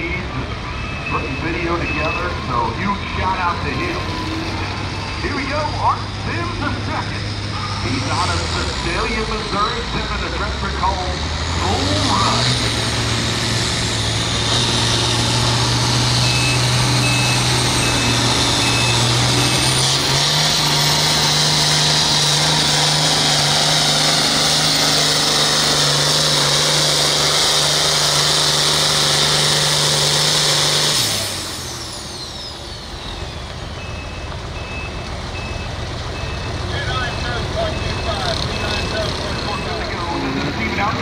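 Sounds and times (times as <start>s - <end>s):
tractor diesel engine under load: 0.0s - 41.0s
reversing alarm beep: 0.6s - 5.8s, 16.1s - 20.2s, 32.4s - 40.2s.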